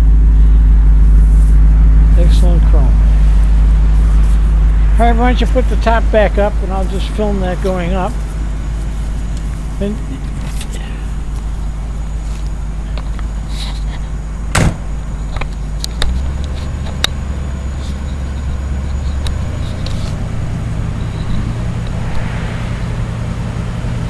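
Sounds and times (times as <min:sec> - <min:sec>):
sharp clunk: 0:14.5 - 0:14.9.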